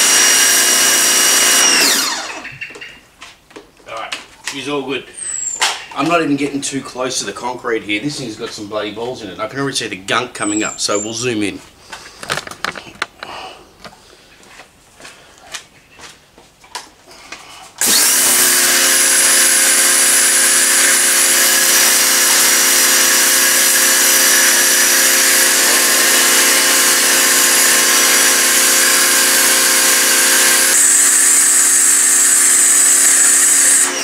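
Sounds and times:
pressure washer motor humming: 0:00.0 - 0:02.6, 0:17.8 - 0:34.0.

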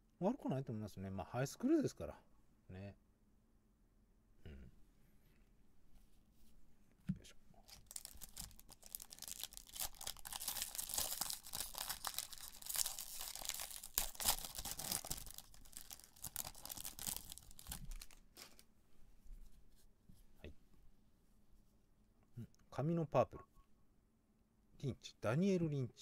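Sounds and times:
plastic wrapper crinkling: 0:07.6 - 0:18.7.

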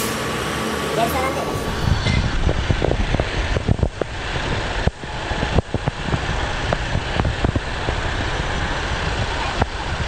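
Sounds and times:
truck diesel engine running: 0:00.0 - 0:10.0.

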